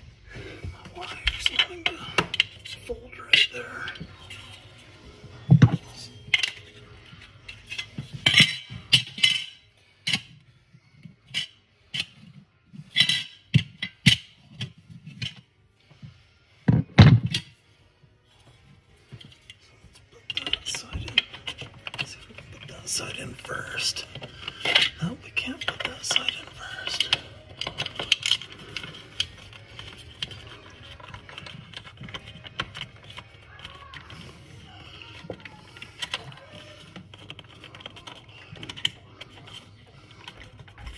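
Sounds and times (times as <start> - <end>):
small hard parts clicking: 19.1 - 40.9.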